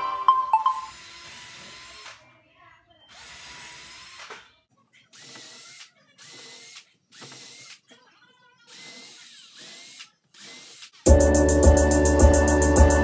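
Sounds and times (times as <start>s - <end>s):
cordless drill whining in bursts: 0.9s - 2.2s, 3.1s - 4.4s, 5.1s - 7.9s, 8.7s - 11.1s.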